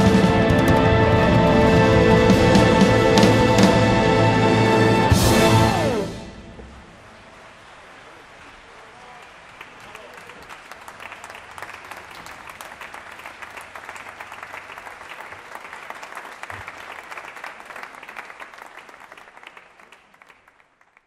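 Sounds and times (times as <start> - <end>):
audience applauding: 4.8 - 21.0.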